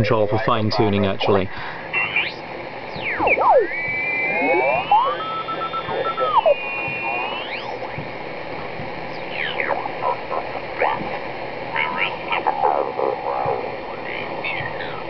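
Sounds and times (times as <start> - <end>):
radio band hiss: 0.0 - 15.0
whistling tones sliding in pitch: 3.0 - 7.8.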